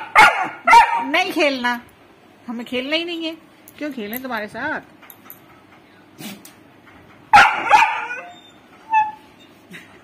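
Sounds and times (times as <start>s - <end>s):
dog barking: 0.0s - 1.1s, 7.3s - 8.3s
dog whining: 7.4s - 9.8s.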